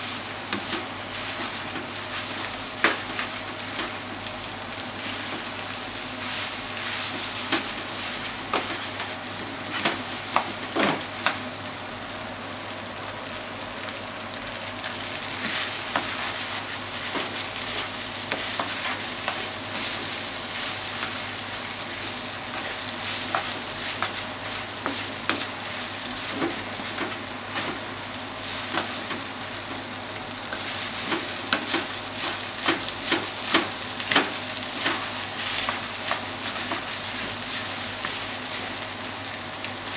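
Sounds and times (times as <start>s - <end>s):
rice sizzling in a frying pan: 0.0s - 39.9s
spatula scraping and knocking pan: 15.4s - 29.4s.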